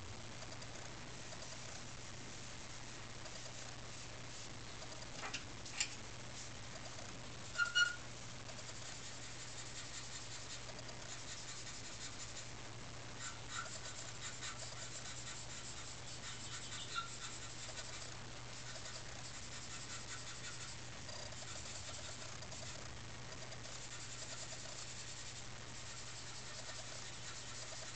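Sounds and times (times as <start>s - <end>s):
short squeaky sounds: 7.6s - 8.0s
pencil scratching on paper: 7.6s - 12.5s, 13.2s - 27.9s.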